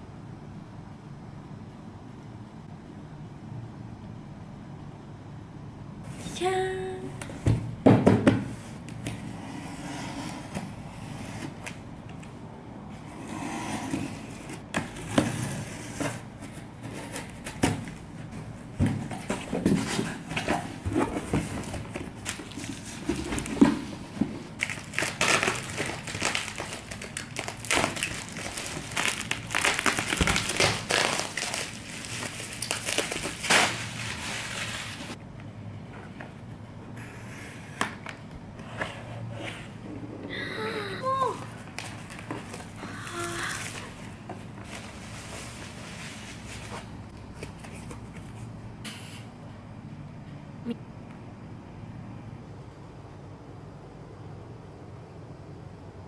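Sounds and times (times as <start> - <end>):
cardboard scraping and rustling: 8.4 - 11.8, 12.9 - 35.2, 43.6 - 48.4
plastic crinkling: 24.6 - 35.2.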